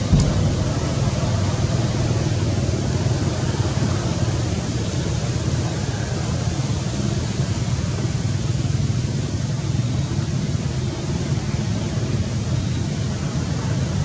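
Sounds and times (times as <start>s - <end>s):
low rumbling: 0.0s - 6.3s
steady hiss: 0.0s - 14.0s.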